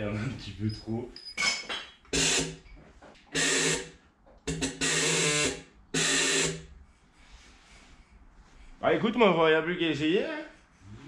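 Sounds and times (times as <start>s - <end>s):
buzzing hum: 3.3s - 6.7s.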